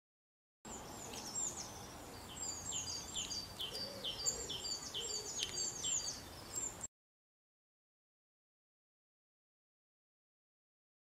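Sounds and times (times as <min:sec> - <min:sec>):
small songbird singing: 0:00.7 - 0:06.9.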